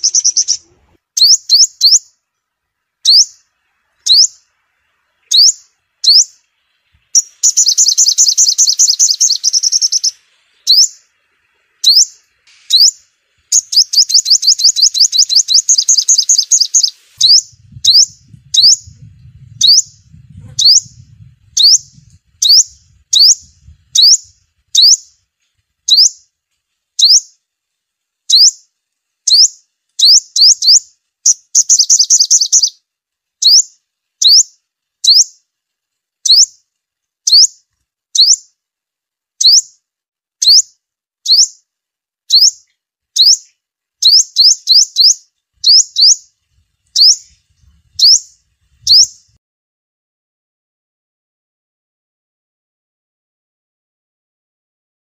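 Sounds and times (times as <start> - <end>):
sunbird chip notes and trills: 0.0 - 26.3, 27.0 - 27.4, 28.2 - 35.5
faint low rumble: 17.2 - 25.6.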